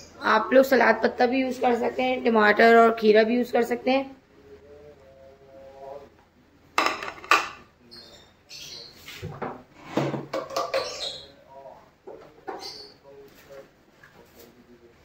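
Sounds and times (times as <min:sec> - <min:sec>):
plates clattering on table: 0:06.8 - 0:07.6, 0:09.3 - 0:11.2.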